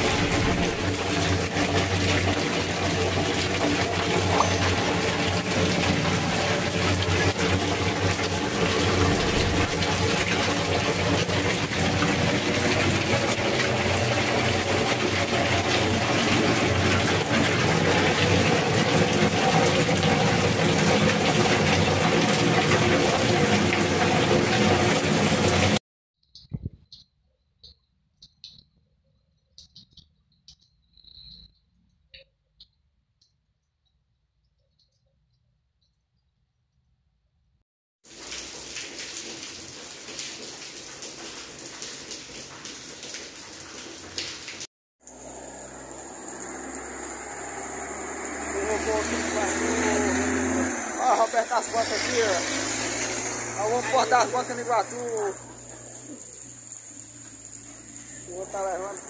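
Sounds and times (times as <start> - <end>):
heavy rain pouring off roof: 0.0 - 25.8, 38.0 - 59.0
faint cricket chirps: 26.2 - 32.4, 55.5 - 58.4.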